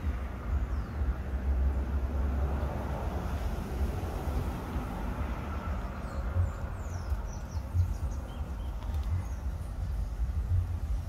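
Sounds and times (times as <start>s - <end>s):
low outdoor rumble: 0.0s - 11.0s
faint bird chirps: 6.0s - 10.7s.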